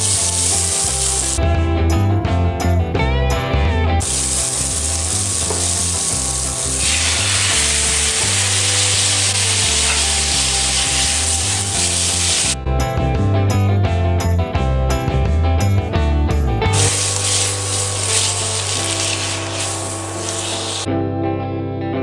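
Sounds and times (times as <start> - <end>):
food sizzling in a wok: 0.0 - 1.4, 4.0 - 12.6, 16.7 - 20.9.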